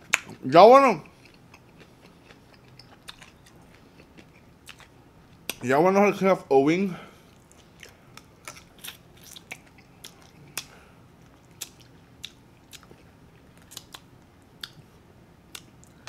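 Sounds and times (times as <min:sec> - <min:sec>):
chewing chicken off bone: 0:01.0 - 0:05.6, 0:07.4 - 0:14.8
wet lip and teeth smacks: 0:01.2 - 0:05.6, 0:07.4 - 0:13.0, 0:13.6 - 0:14.8, 0:15.5 - 0:15.9.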